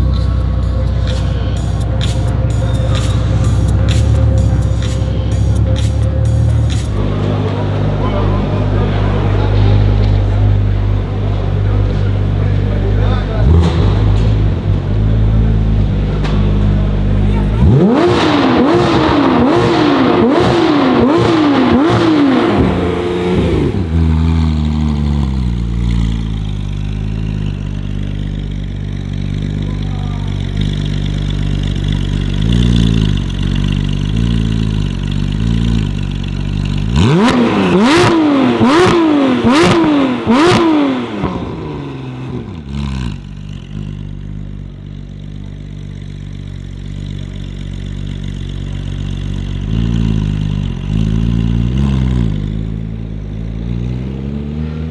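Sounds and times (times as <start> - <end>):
car engine revving and idling: 0.0 - 54.9
exhaust pops and crackles: 13.4 - 53.5.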